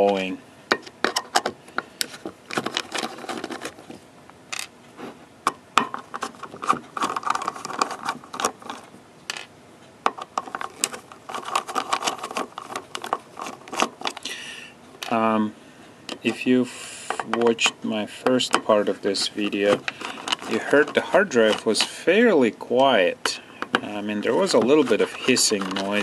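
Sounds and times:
screws scraping as they turn: 2.0s - 3.9s, 6.1s - 8.8s, 10.4s - 14.3s, 18.5s - 22.2s, 23.6s - 26.0s.

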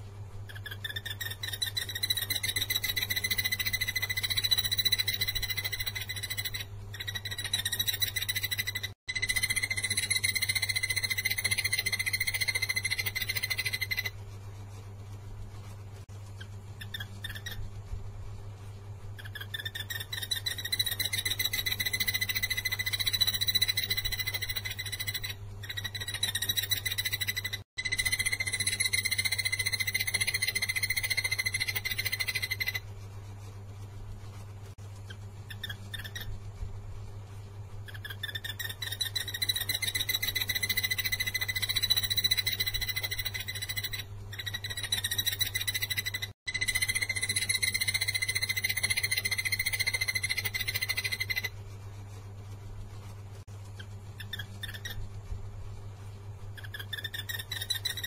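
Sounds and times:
low steady hum: 0.0s - 58.0s
barbet calling: 0.5s - 14.1s, 37.9s - 51.5s.

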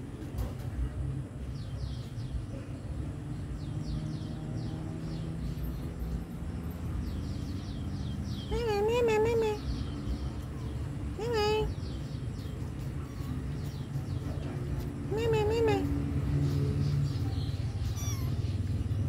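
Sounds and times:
faint bird chirps: 15.1s - 19.0s
kitten mewing: 17.5s - 19.0s.

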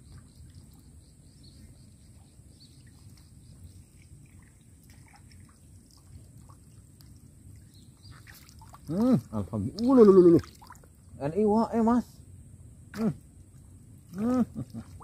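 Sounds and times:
faint bird chirps: 0.0s - 4.7s
water trickling: 0.0s - 11.5s
wind and water rumble: 0.0s - 15.0s.

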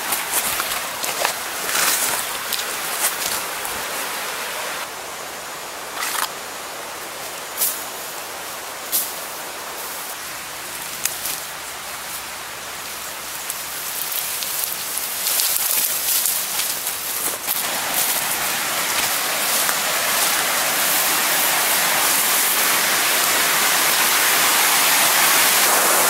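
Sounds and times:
leaves brushing past: 0.0s - 4.9s, 7.1s - 26.0s
water hissing: 13.2s - 26.0s.

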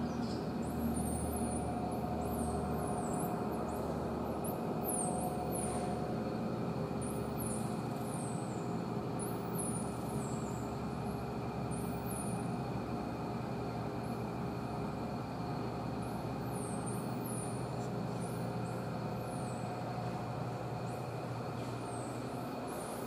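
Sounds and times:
machinery hum and hiss: 0.0s - 23.0s.

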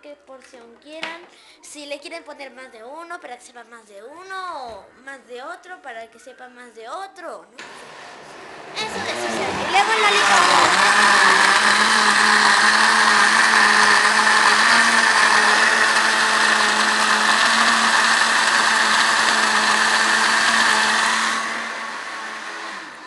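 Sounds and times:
blender motor spinning down: 7.6s - 23.0s
blender running: 7.6s - 23.0s.

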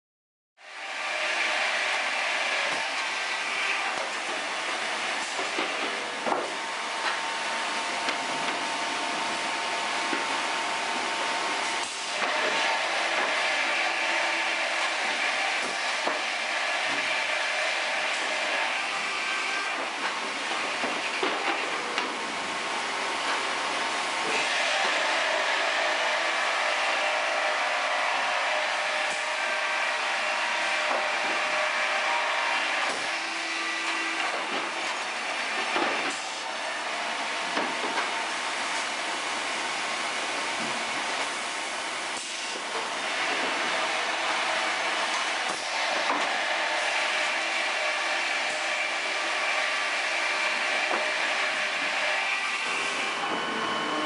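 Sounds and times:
circular saws and machinery: 0.6s - 54.0s.

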